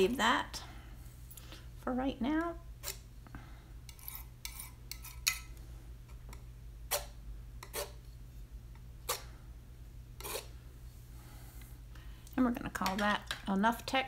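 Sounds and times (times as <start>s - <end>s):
palette knife scraping paper: 6.9s - 8.0s, 10.2s - 10.5s.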